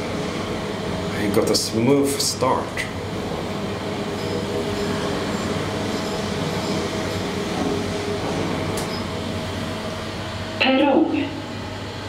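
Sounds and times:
elevator car rumbling: 0.0 - 12.0.

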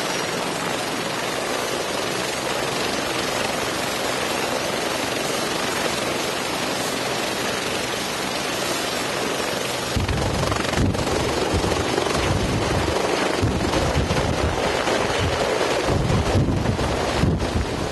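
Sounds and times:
helicopter rotor chopping: 0.0 - 17.9
rotor wash buffeting microphone: 9.7 - 17.9.

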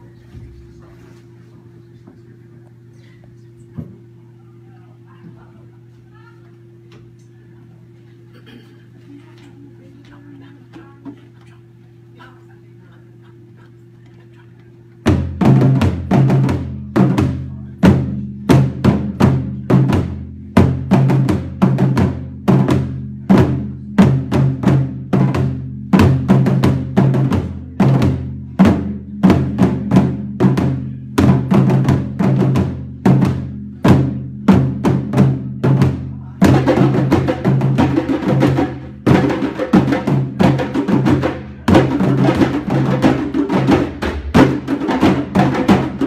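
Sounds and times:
drum ensemble playing: 14.8 - 46.0.

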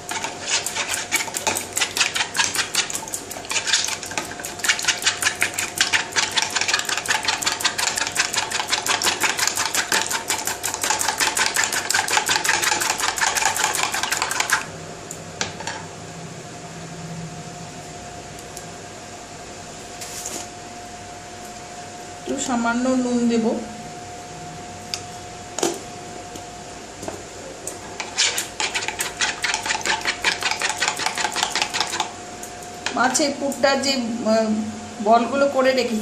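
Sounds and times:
spoon whisking eggs in bowl: 0.0 - 14.7, 28.0 - 32.1.

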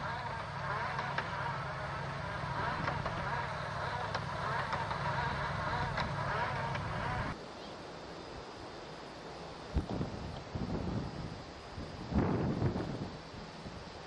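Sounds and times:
drilling rig machine drone: 0.0 - 7.4.

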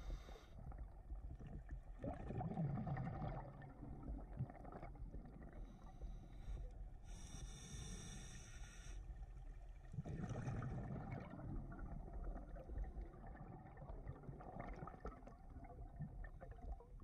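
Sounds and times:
regulator hissing inhale: 0.0 - 0.6, 5.8 - 9.1
bubbling underwater exhale: 1.4 - 6.2, 9.9 - 17.0.

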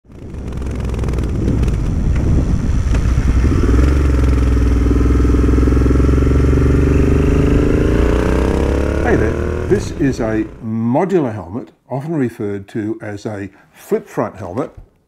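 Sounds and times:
motorcycle engine accelerating: 0.0 - 10.8.

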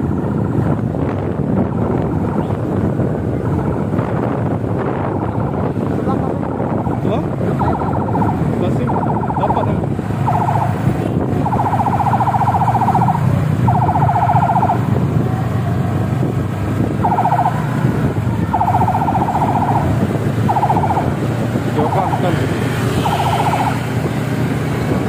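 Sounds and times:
engines and road noise: 0.0 - 25.0
electronic siren horn blasts: 10.2 - 14.8, 17.0 - 17.8, 18.5 - 21.2, 22.9 - 23.8.

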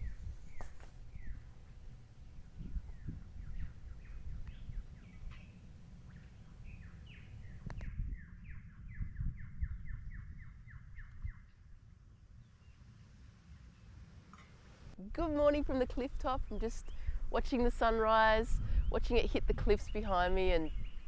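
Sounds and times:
birds chirping: 0.0 - 14.0, 19.8 - 21.0
wind rumbling on microphone: 0.0 - 21.0.

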